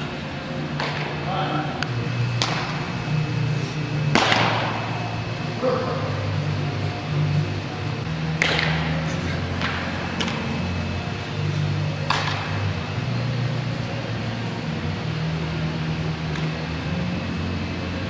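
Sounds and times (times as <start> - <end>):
ventilation hum: 0.0 - 18.0
baseball smacking glove or bat: 4.0 - 4.8.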